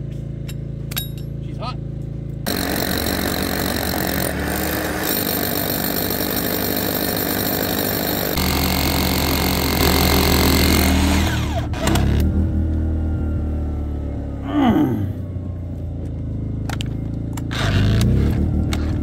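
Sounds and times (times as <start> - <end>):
hammer drill boring through brick: 2.5 - 12.2.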